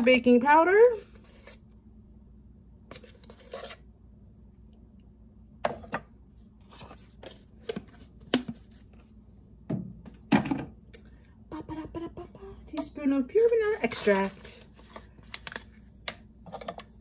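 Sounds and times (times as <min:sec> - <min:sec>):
metal spoon scraping powder: 0:02.9 - 0:03.9, 0:13.5 - 0:14.6.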